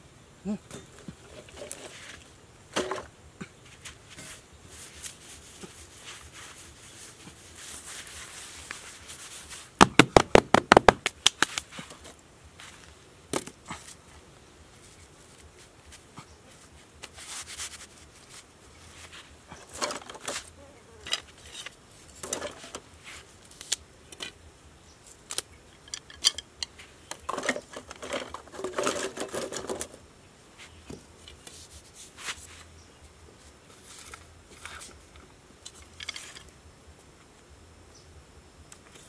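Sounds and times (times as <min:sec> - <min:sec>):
scrapes and taps in dry sand: 0:03.5 - 0:09.8, 0:10.4 - 0:14.0, 0:14.8 - 0:24.4, 0:30.6 - 0:32.8
hands slapping sand: 0:03.8 - 0:12.0.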